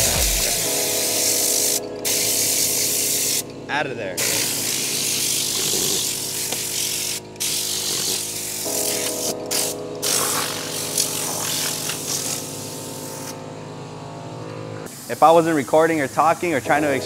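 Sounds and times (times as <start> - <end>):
compressed air gun hissing: 0.4 - 3.4, 4.2 - 13.3.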